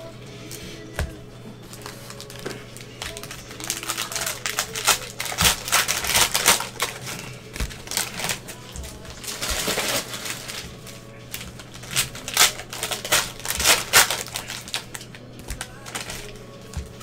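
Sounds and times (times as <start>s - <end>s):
cellophane wrappers crinkling: 1.5s - 17.0s.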